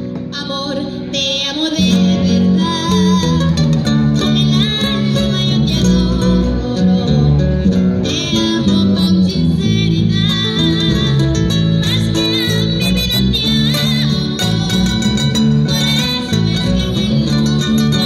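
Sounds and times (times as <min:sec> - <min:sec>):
acoustic guitars strumming: 0:00.0 - 0:18.0.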